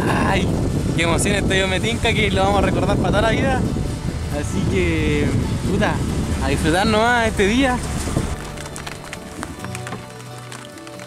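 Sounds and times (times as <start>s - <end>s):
sustained low music notes: 0.5s - 10.5s
ticking percussion: 5.8s - 11.0s.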